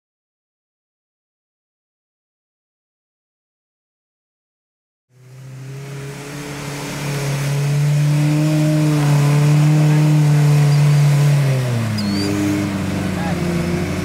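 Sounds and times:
pickup truck engine revving: 0:05.1 - 0:14.0.

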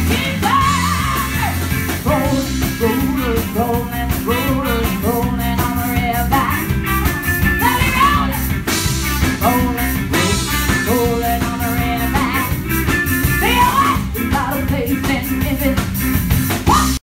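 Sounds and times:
woman singing: 0:00.0 - 0:08.6, 0:09.4 - 0:12.6, 0:13.3 - 0:16.0, 0:16.6 - 0:17.0
drums: 0:00.0 - 0:17.0
electric guitar: 0:00.0 - 0:17.0
trumpet: 0:08.9 - 0:13.9.

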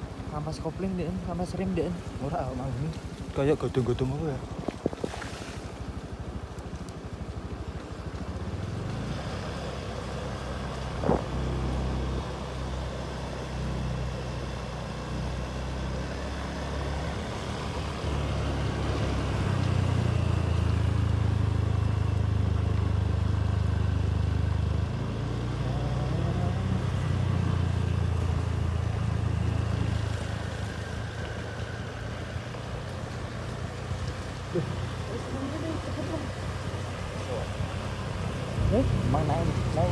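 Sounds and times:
motorcycle engine revving: 0:08.6 - 0:12.8, 0:15.5 - 0:39.9.

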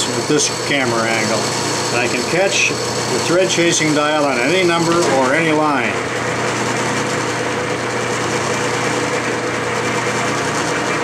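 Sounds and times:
metal lathe humming: 0:00.0 - 0:11.0.

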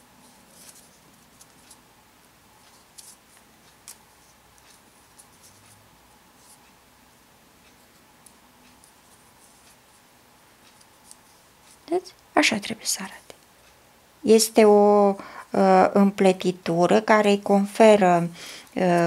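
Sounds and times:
paper tubes rustling and rubbing: 0:00.2 - 0:01.8.

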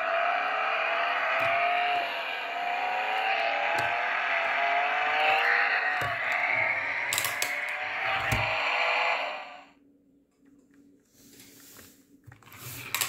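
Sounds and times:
toy race car engine sound effect: 0:00.0 - 0:09.7.

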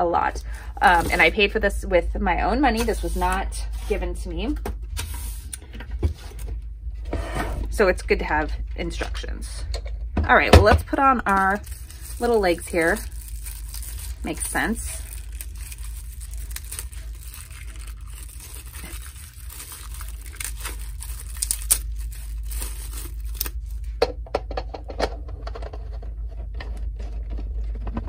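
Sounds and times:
steady low hum: 0:00.0 - 0:28.0
plastic bags crinkling and tearing: 0:00.3 - 0:01.4, 0:11.1 - 0:23.9.

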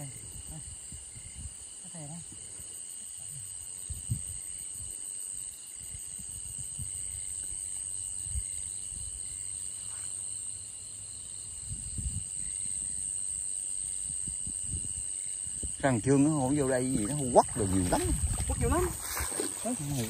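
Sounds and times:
night insects chirring: 0:00.0 - 0:20.0
boots stepping on muddy ground: 0:17.0 - 0:20.0.

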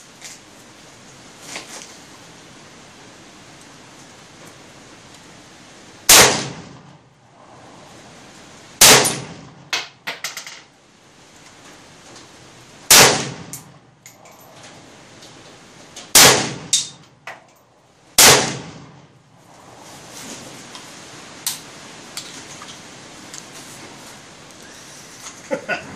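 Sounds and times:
rifle shots with echo: 0:06.1 - 0:06.9, 0:08.8 - 0:09.6, 0:12.9 - 0:13.6, 0:16.1 - 0:17.0, 0:18.2 - 0:19.0.

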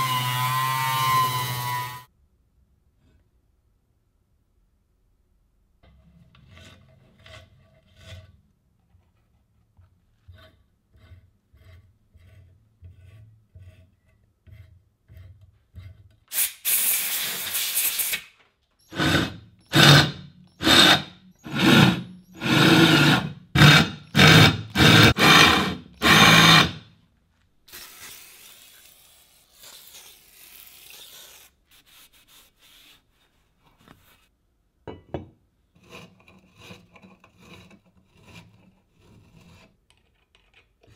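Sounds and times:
power drill drilling metal: 0:18.9 - 0:26.8.

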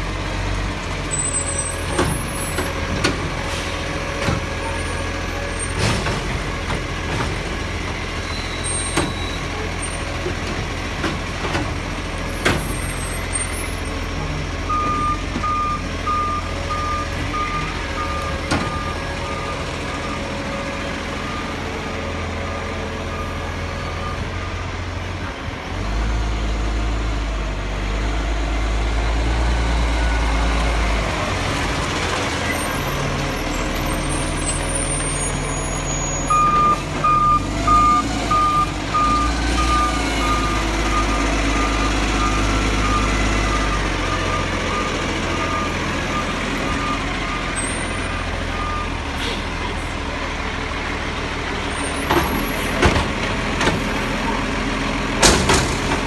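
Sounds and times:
diesel engine rumbling: 0:00.0 - 0:56.0
reversing alarm beeps: 0:14.7 - 0:20.2, 0:36.2 - 0:47.7.

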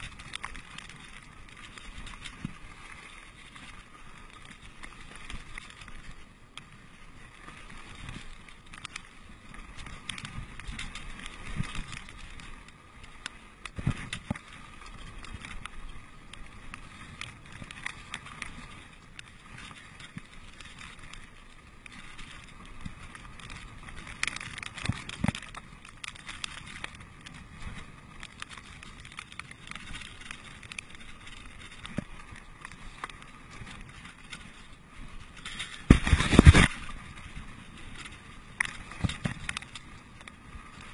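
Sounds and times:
bike rattling and knocking: 0:00.0 - 0:02.6, 0:09.7 - 0:12.5, 0:17.0 - 0:21.3, 0:21.9 - 0:34.7, 0:35.3 - 0:40.9
bike tyres rolling on dirt: 0:00.0 - 0:40.9.

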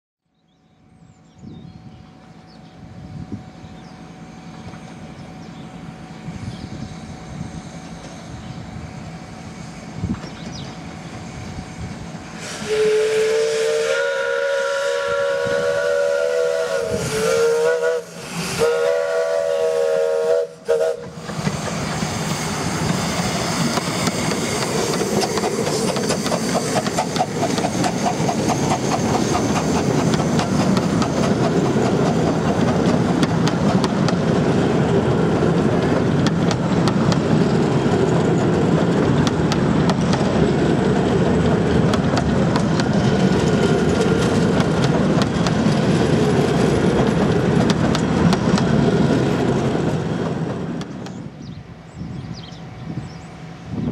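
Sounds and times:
rolling train wheels: 0:00.5 - 0:53.9
steam locomotive rumbling: 0:00.6 - 0:53.9
steam exhaust beats: 0:02.9 - 0:53.9
steam whistle blasts: 0:12.3 - 0:22.8
carriages clickety-clack: 0:23.8 - 0:34.5, 0:35.5 - 0:51.2.

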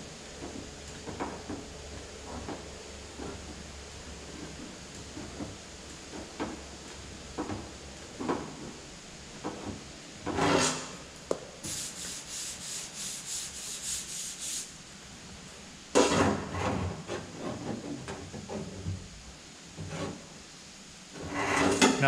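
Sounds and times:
hand sanding sheet metal: 0:11.6 - 0:14.7.

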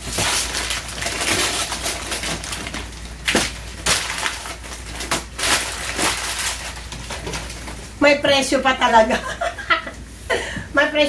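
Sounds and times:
wrapping paper snapping: 0:00.0 - 0:07.8
wrapping paper crinkling: 0:00.0 - 0:08.0.

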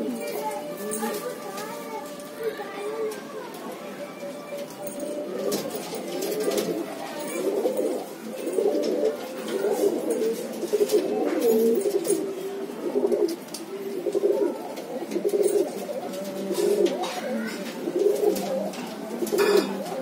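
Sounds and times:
pigeons cooing: 0:00.0 - 0:20.0.

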